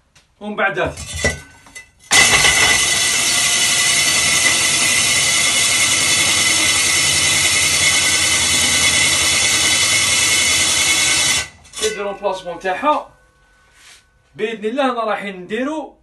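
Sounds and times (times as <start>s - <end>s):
drill with hole saw cutting wall: 2.1s - 11.9s.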